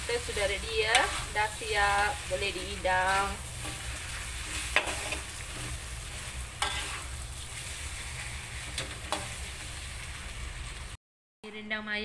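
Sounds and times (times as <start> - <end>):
food sizzling in a wok: 0.0 - 11.0
spatula scraping a metal wok: 0.1 - 10.2.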